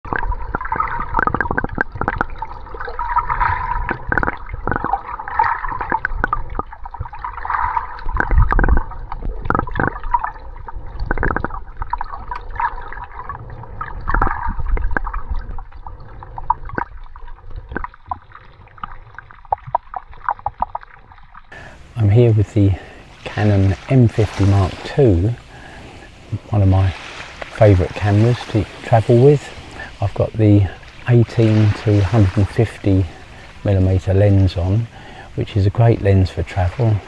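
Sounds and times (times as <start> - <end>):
muffled underwater water gurgling: 0.1 - 37.0.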